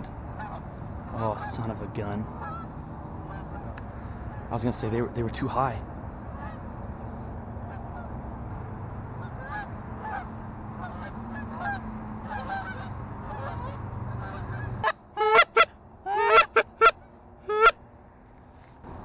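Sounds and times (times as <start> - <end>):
low background hum: 0.0 - 19.0
geese honking: 0.3 - 5.1, 6.3 - 6.8, 7.6 - 8.2, 9.1 - 17.8.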